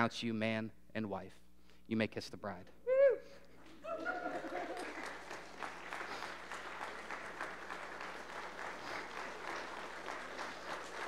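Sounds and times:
crowd clapping: 0:03.6 - 0:11.0.

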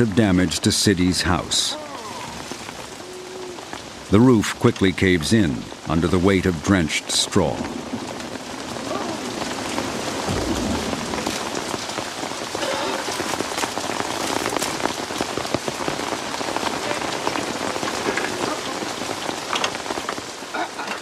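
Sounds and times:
heavy rain pattering: 0:00.0 - 0:21.0
water drops dripping and splashing: 0:07.6 - 0:21.0.

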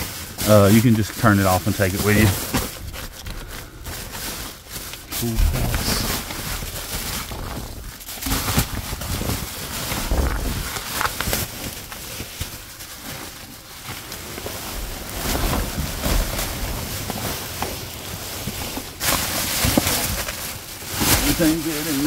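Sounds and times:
knocks and rustles: 0:01.2 - 0:21.4
wind on microphone: 0:05.2 - 0:06.8
steady rushing noise: 0:05.2 - 0:06.9.

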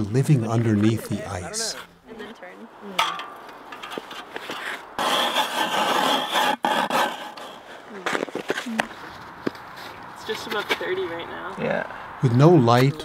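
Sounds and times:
soft voices: 0:00.2 - 0:03.0
ice auger grinding through ice: 0:04.6 - 0:08.3.

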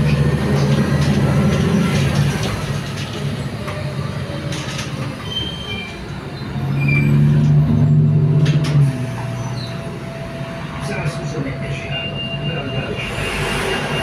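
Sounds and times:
bus diesel engine droning: 0:00.0 - 0:14.0
road noise: 0:00.0 - 0:14.0
high squeaks from bus body: 0:04.5 - 0:07.4, 0:08.7 - 0:09.8.

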